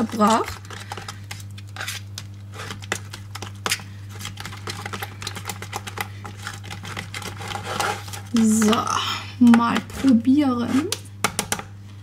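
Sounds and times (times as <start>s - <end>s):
spoon stirring thick sauce: 0.0s - 8.8s, 9.4s - 10.9s.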